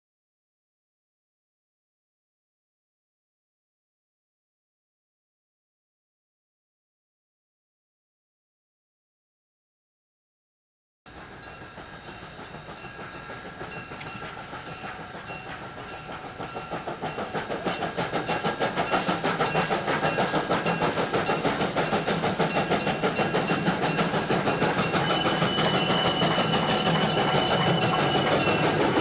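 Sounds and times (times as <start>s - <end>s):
steam locomotive beats: 11.1s - 29.0s.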